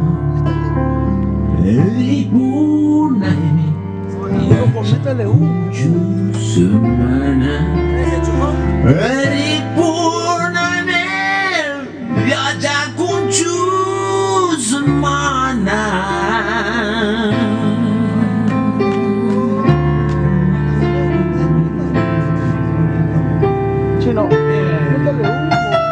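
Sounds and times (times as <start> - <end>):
bass notes: 0.0 - 25.9
guitar: 0.0 - 25.9
man singing blues: 1.5 - 23.4.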